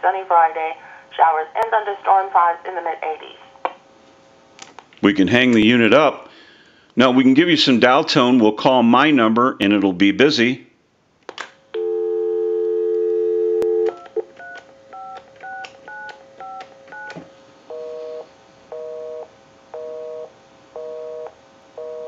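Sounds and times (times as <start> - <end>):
busy signal beeps: 11.8 - 14.1
telephone dial tone: 11.8 - 18.2, 19.8 - 22.0.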